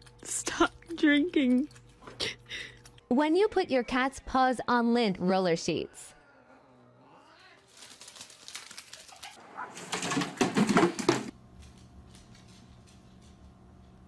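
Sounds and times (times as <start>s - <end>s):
sticky sheets clicking on tile floor: 7.7s - 14.0s.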